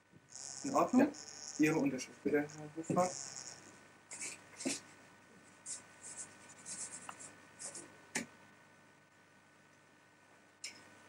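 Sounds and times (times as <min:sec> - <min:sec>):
pen scratching on paper: 0:05.7 - 0:07.8.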